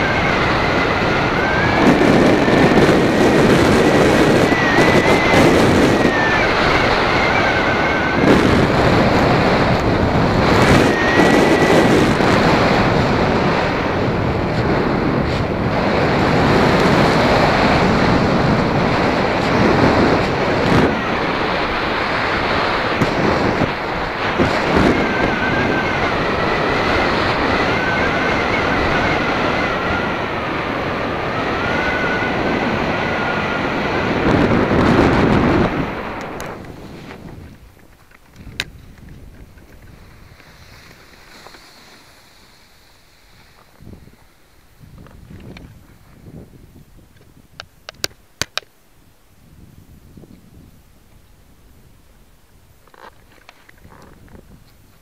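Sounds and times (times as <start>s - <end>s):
paramotor engine running: 0.0s - 42.4s
wind noise on microphone: 0.0s - 55.0s.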